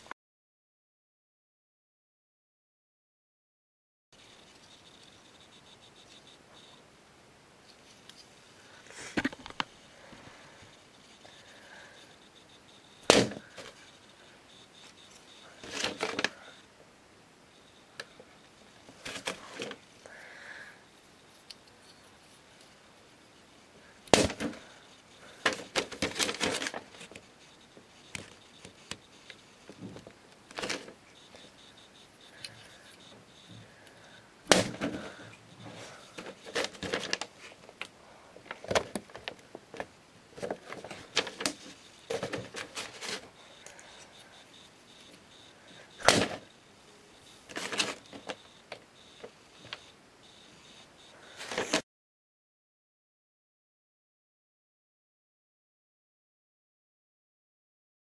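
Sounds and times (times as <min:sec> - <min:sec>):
toy dagger smacking paper target: 0:13.0 - 0:13.7, 0:24.1 - 0:24.6, 0:34.5 - 0:35.0, 0:46.0 - 0:46.4.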